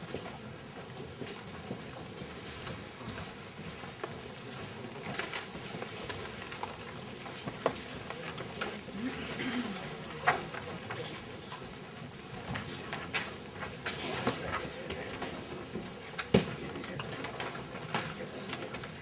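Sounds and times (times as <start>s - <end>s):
audience shuffling: 0.0s - 19.0s
murmur of voices: 4.5s - 19.0s.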